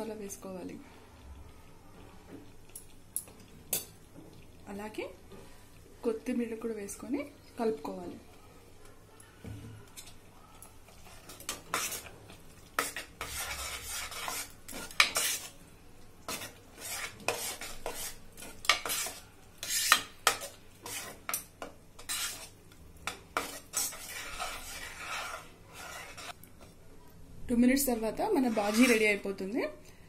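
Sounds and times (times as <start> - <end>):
metal spoon scraping a pot: 10.9 - 12.1, 12.7 - 15.6, 16.3 - 26.4, 28.2 - 29.3.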